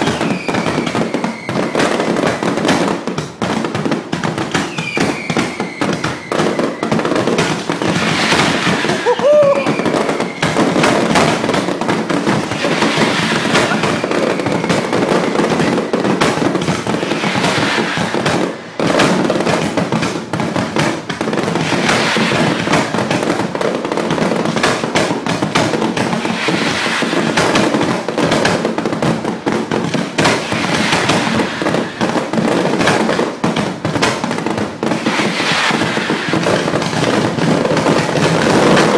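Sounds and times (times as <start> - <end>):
rising firework whistle: 0.0 - 2.3, 4.6 - 7.3, 8.0 - 11.5, 12.4 - 19.0, 26.2 - 27.8, 30.3 - 32.4, 35.0 - 36.6
firecracker bangs and crackling: 0.0 - 38.9.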